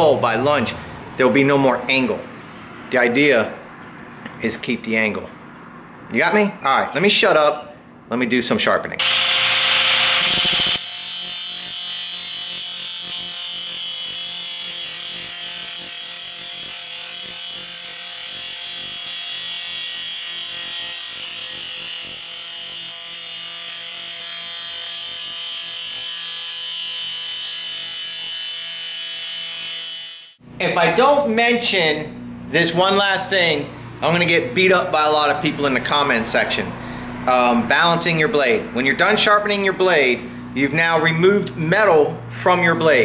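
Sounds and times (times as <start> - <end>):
angle grinder grinding steel: 9.0 - 30.4.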